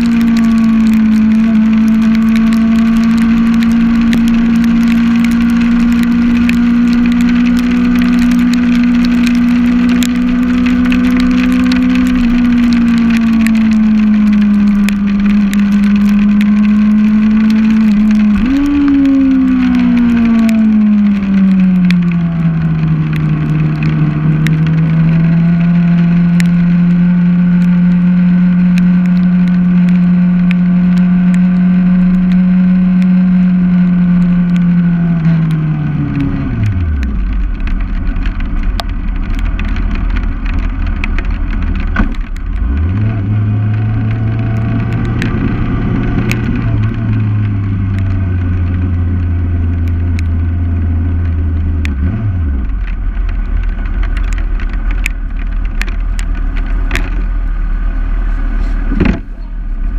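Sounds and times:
vehicle engine running: 0:00.0 - 0:59.9.

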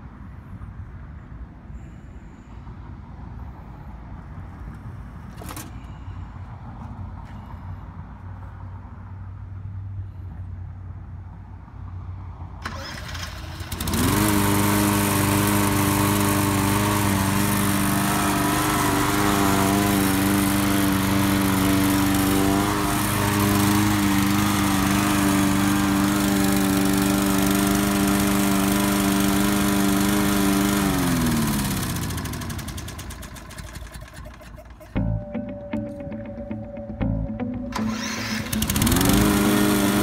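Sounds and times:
small lawn mower engine running: 0:12.6 - 0:35.2, 0:37.7 - 0:40.0.

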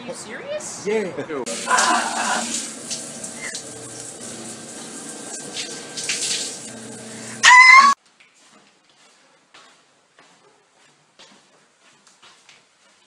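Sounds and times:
shower water running: 0:01.5 - 0:08.0
man screaming: 0:01.6 - 0:02.5, 0:07.4 - 0:08.0.

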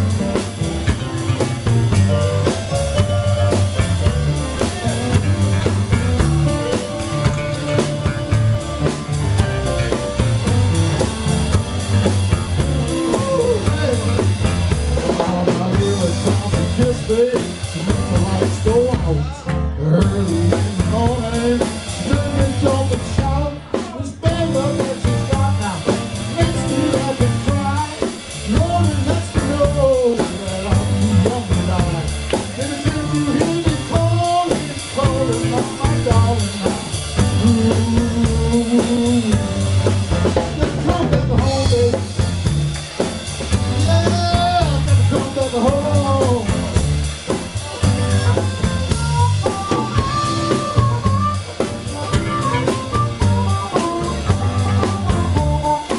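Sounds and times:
drum kit: 0:00.0 - 0:55.9
electric bass: 0:00.0 - 0:55.9
stage piano: 0:00.0 - 0:55.9
harmonica solo: 0:47.6 - 0:55.9.

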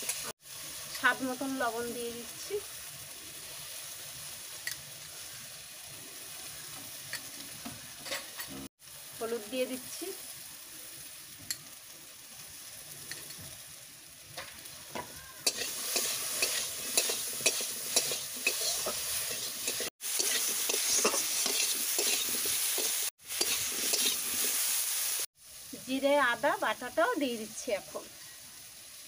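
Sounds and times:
vegetables sizzling in hot oil: 0:00.0 - 0:29.0
spatula scraping and stirring: 0:15.4 - 0:24.7.

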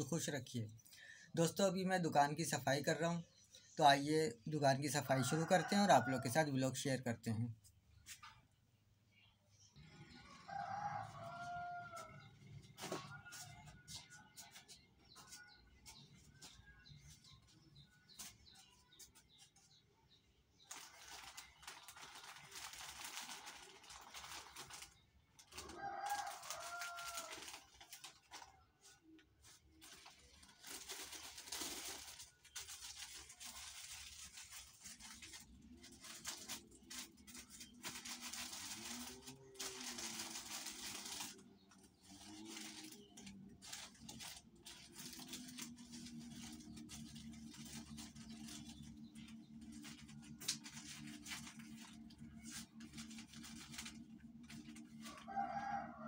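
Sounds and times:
plastic strips rustling and crinkling: 0:09.8 - 0:56.0
rooster crowing: 0:10.4 - 0:12.2, 0:25.8 - 0:27.5, 0:55.1 - 0:56.0.

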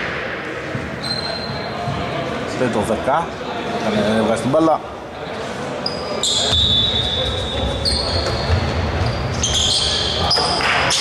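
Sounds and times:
sneakers squeaking: 0:00.6 - 0:02.2, 0:05.8 - 0:11.0.

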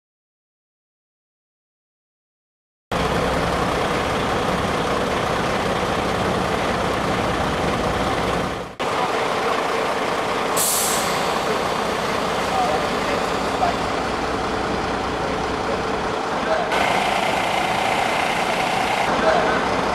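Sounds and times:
diesel engine running: 0:02.9 - 0:19.9
air brakes hissing: 0:10.5 - 0:13.6.

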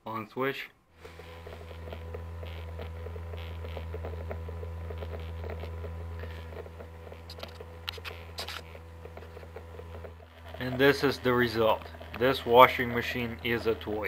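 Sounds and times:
small motor humming: 0:00.9 - 0:14.0
faint ticking: 0:01.0 - 0:14.0.

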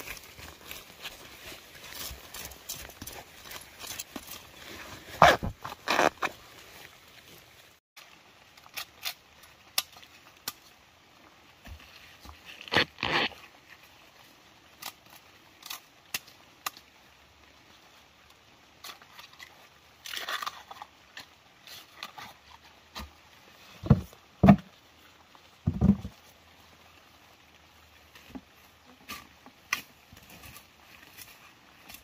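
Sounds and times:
dry leaves rustling and crackling: 0:00.0 - 0:16.9, 0:24.7 - 0:32.0.

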